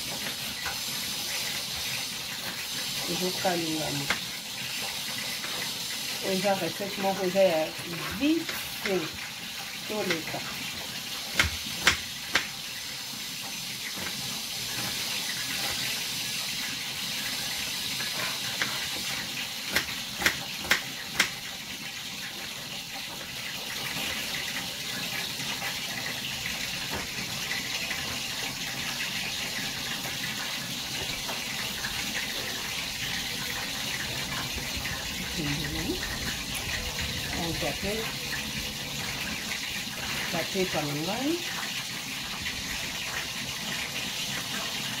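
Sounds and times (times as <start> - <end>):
knife tapping on cutting board: 11.4 - 12.5, 19.7 - 21.4.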